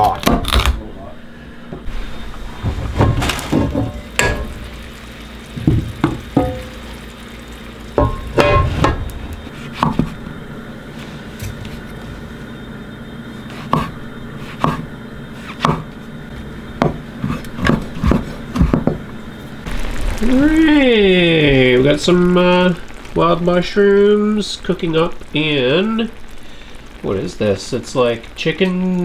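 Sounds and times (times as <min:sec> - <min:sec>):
knife tapping cutting board: 0:15.6 - 0:15.8.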